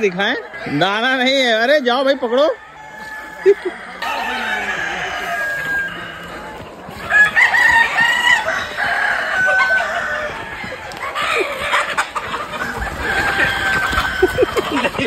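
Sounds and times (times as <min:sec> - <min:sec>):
chickens calling loudly: 0:00.0 - 0:15.0
running footsteps: 0:04.0 - 0:15.0.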